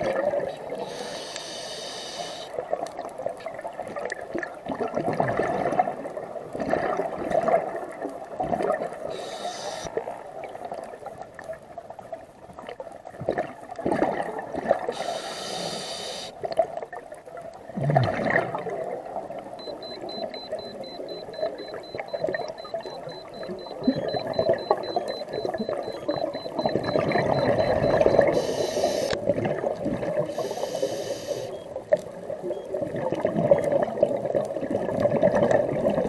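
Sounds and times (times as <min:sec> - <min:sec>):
regulator hissing inhale: 0:00.8 - 0:02.5, 0:09.1 - 0:09.9, 0:15.0 - 0:16.4, 0:28.3 - 0:29.2, 0:30.3 - 0:31.6
faint high pulsing tone: 0:09.1 - 0:09.9, 0:19.6 - 0:29.2.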